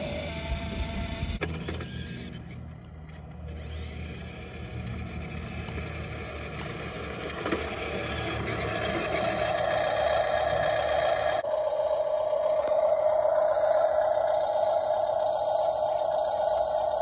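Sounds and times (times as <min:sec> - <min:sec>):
toy truck electric motor whining: 0:00.0 - 0:17.0.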